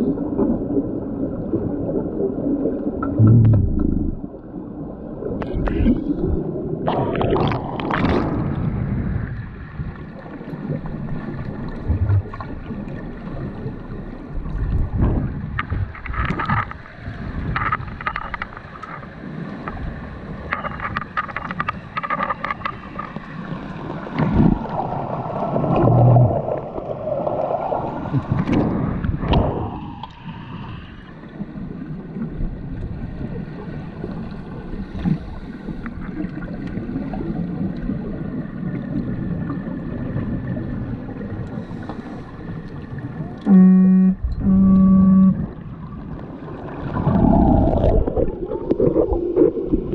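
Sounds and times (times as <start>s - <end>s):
underwater bubbling and gurgling: 0.0s - 49.9s
underwater knocks: 3.0s - 4.2s
faint steady tones: 41.0s - 46.2s.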